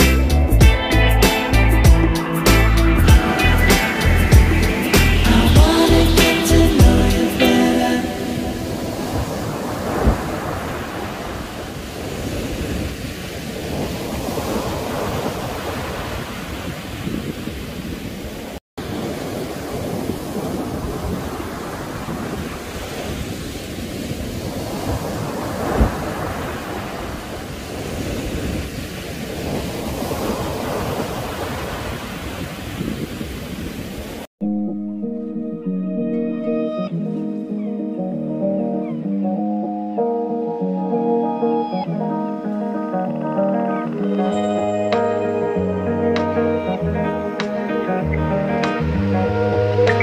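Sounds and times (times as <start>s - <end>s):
surf washing on shore: 1.2s - 34.3s, 40.1s - 50.0s
wind on microphone: 2.8s - 34.3s.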